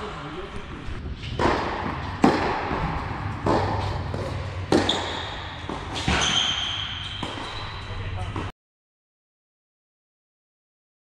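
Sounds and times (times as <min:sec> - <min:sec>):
tennis ball racket impacts: 0:01.3 - 0:07.7
shoes squeaking on court: 0:03.3 - 0:08.5.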